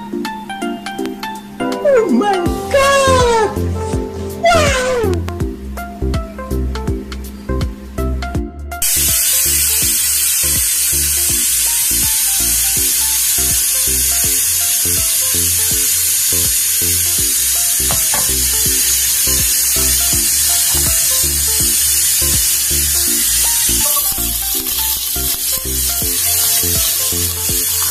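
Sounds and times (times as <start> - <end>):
background music: 0.0 - 27.9
cooking oil sizzling in a pot: 8.8 - 27.9.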